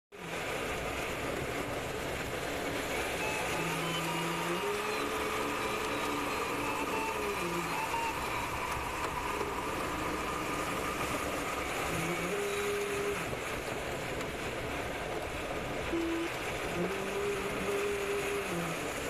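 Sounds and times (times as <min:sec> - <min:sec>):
airflow rushing over canopy: 0:00.2 - 0:19.0
variometer short tones: 0:15.9 - 0:16.4.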